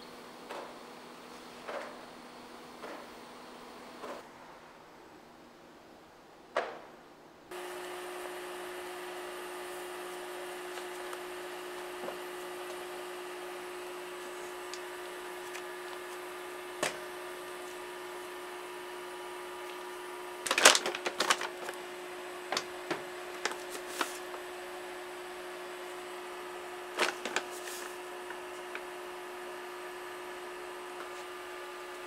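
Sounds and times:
steady hum: 7.3 - 32.0.

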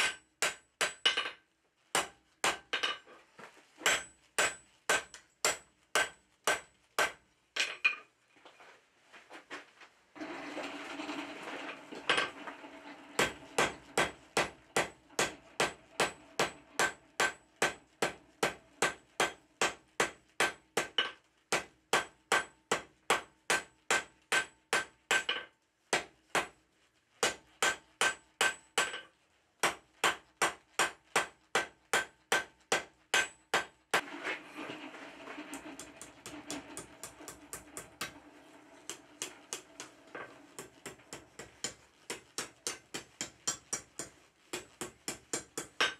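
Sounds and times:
hammer striking metal on anvil: 0.0 - 1.4, 2.0 - 3.0, 3.8 - 8.0, 13.2 - 26.5, 27.2 - 34.0, 35.5 - 38.2, 38.9 - 45.9.

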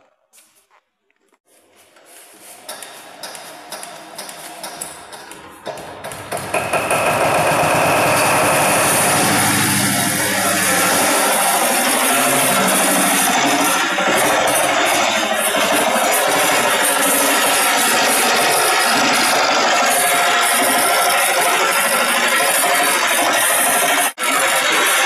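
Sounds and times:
diesel engine hand-cranked knocking: 2.6 - 24.2
diesel engine running: 7.0 - 17.8.

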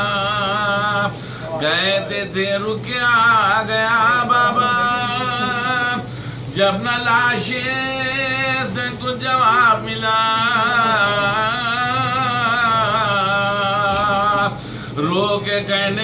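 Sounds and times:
man chanting unaccompanied: 0.0 - 16.0
man breathing: 6.1 - 6.5, 14.6 - 15.0.

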